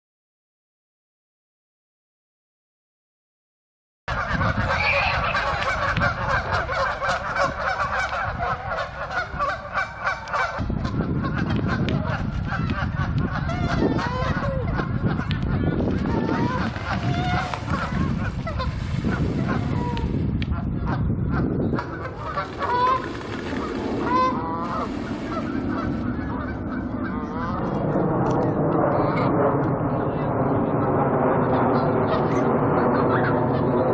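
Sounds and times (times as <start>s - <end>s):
geese honking: 4.1s - 27.8s
low steady rumble: 4.1s - 33.9s.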